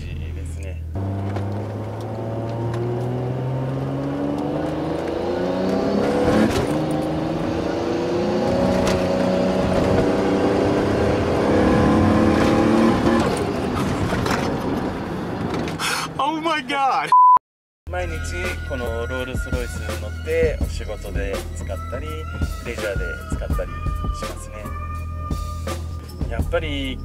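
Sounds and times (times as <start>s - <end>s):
car engine accelerating: 0.2s - 15.7s.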